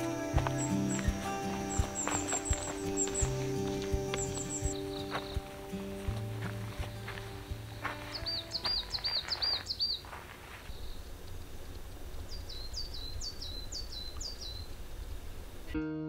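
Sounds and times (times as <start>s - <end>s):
footsteps on trail: 0.0s - 11.2s
songbird singing: 0.0s - 15.8s.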